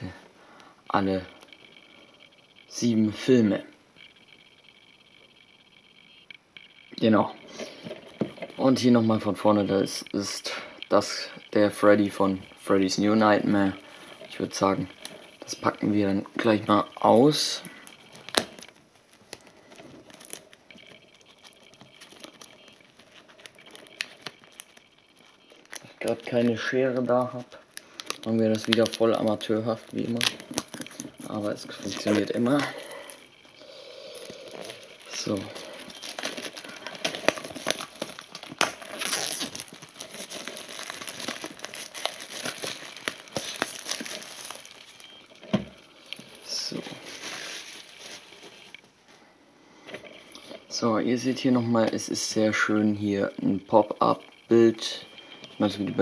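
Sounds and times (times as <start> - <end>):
plastic shrink-wrap crinkling: 7.1 - 48.9.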